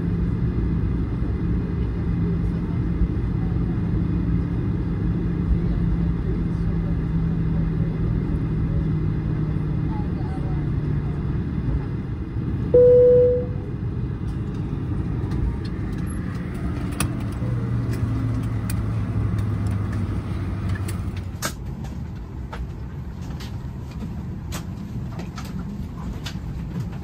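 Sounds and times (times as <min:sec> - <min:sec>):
cabin air system hum: 0:12.7 - 0:13.8
chime tone: 0:12.8 - 0:13.6
clicks and knocks of passengers: 0:14.2 - 0:27.0.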